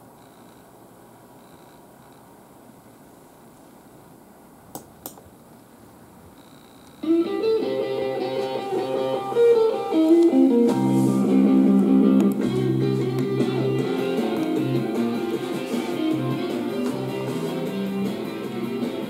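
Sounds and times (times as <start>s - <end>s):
guitar music with bass line: 7.0s - 19.0s.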